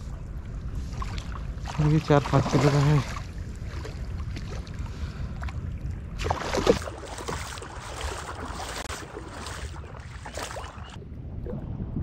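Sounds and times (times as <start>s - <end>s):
fish thrashing and splashing: 6.2s - 11.0s.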